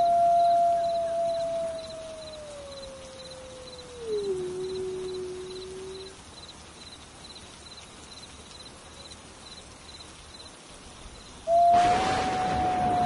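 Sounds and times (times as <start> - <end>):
wolf howling: 0.0 - 6.2, 11.5 - 13.0
faint insect chirping: 0.0 - 11.7.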